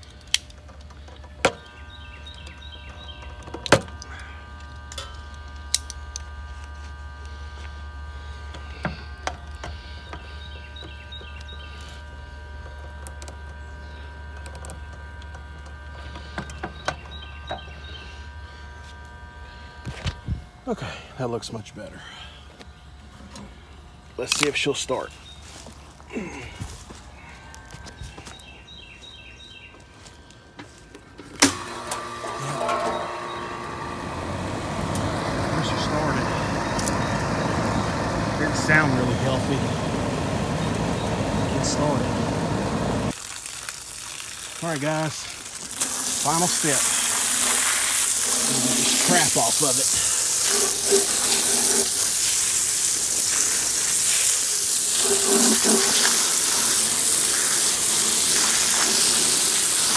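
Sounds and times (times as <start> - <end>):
compressor and fan humming: 0.0 - 59.9
hose spraying water: 31.4 - 59.9.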